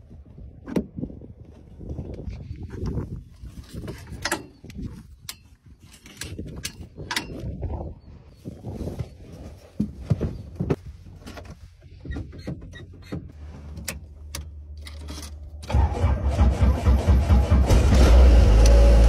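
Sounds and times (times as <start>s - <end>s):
helicopter engine starting: 15.7s - 19.0s.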